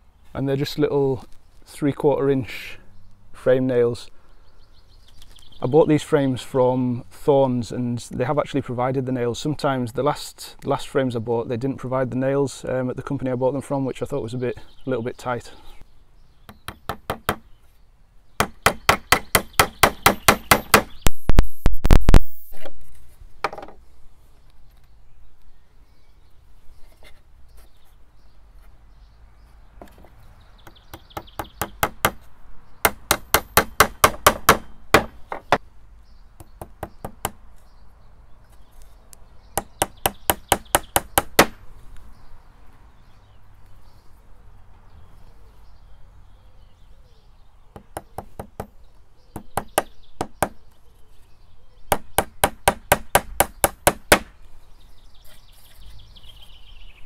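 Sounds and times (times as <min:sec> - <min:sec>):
hammer tapping nails into wood: 0:32.9 - 0:35.6, 0:39.6 - 0:41.6.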